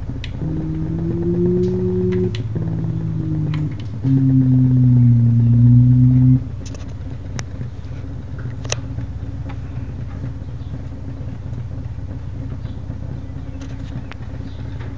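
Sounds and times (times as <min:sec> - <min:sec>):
steady low hum: 0:00.0 - 0:14.9
held synthesizer note: 0:00.3 - 0:06.6.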